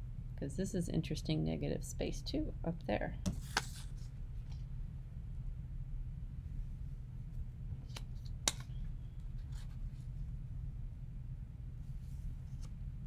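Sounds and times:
steady low hum: 0:00.0 - 0:13.0
paper rustling: 0:03.3 - 0:04.1.

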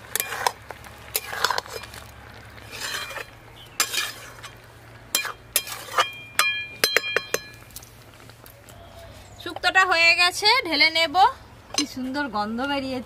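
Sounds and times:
metal spatula scraping a wok: 0:00.0 - 0:06.5.

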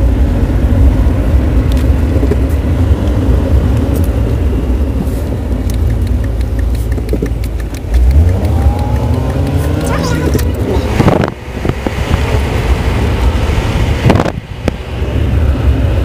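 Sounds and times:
car driving rumble: 0:00.0 - 0:16.0
faint ticks: 0:05.6 - 0:10.0.

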